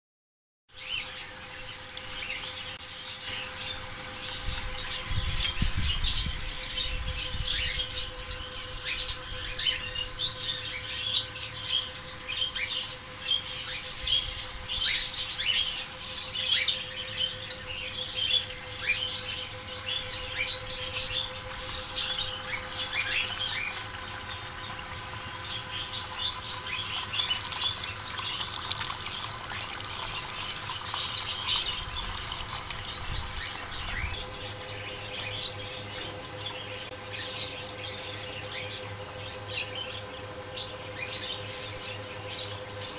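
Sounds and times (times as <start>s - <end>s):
water trickling: 0.8s - 6.2s, 18.8s - 34.7s
cage birds chirping and squawking: 0.8s - 42.9s
steady hum: 0.8s - 42.9s.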